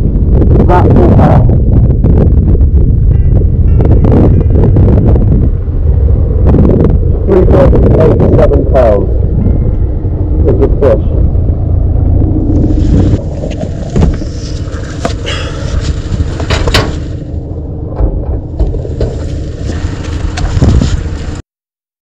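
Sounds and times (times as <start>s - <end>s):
wind buffeting microphone: 0.0s - 21.4s
wetsuit rustling and knocking: 12.8s - 17.2s.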